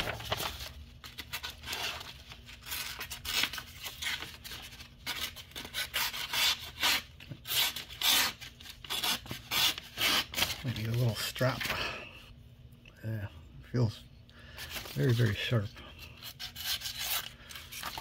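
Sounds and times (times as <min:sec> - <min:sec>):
paper rustling: 0:00.0 - 0:05.4.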